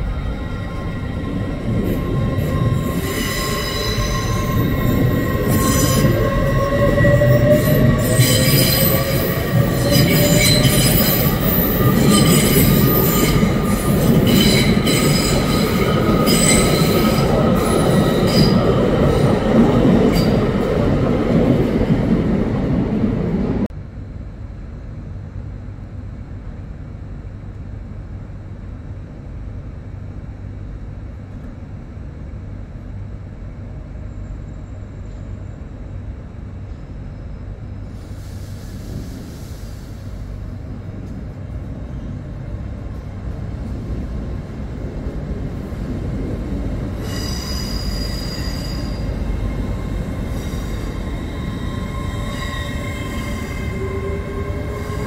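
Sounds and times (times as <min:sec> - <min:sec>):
train wheels squealing on rails: 0:00.0 - 0:20.8, 0:34.0 - 0:36.1, 0:36.7 - 0:40.6, 0:46.5 - 0:55.0
heavy train rumble: 0:00.0 - 0:55.0.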